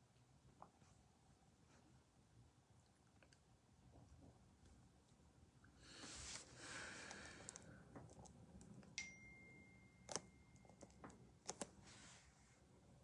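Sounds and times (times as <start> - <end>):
soft hiss: 4.5 - 7.9, 11.8 - 13.0.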